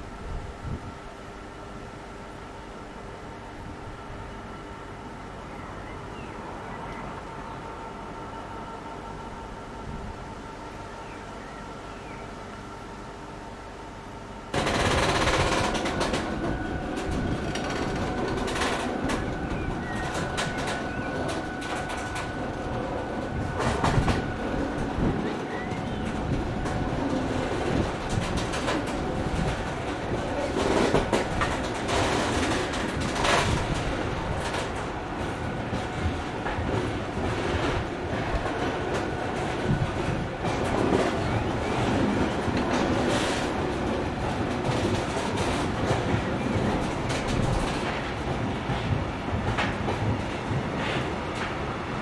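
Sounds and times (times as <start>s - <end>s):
train wheels clattering over rail joints: 14.6s - 51.7s.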